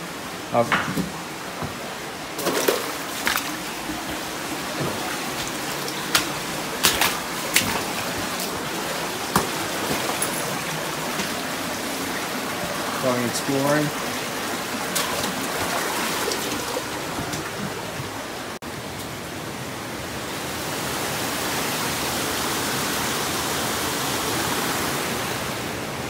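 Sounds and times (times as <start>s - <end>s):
stream water trickling over rocks: 2.2s - 18.6s.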